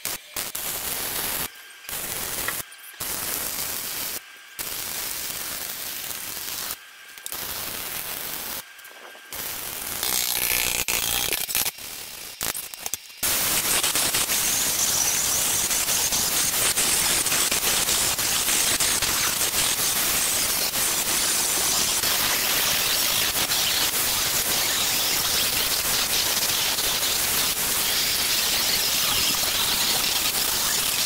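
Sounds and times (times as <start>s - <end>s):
electric arc welding crackling: 0.0s - 31.0s
angle grinder grinding steel: 9.4s - 31.0s.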